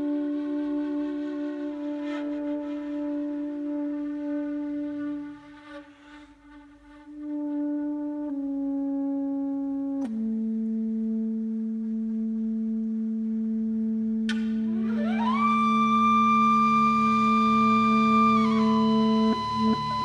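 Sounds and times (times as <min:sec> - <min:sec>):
kaval flute: 0:00.0 - 0:20.0
soprano saxophone: 0:00.0 - 0:20.0.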